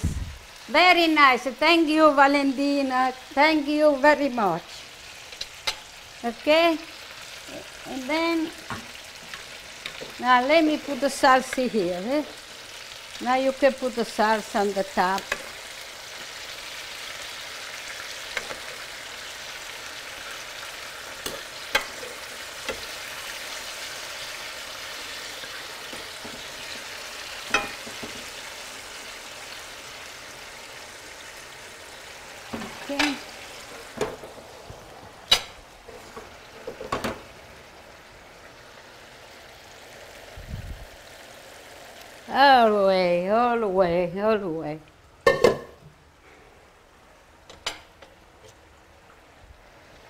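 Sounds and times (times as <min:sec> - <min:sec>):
steaks sizzling in a pan: 0:04.7 - 0:34.8.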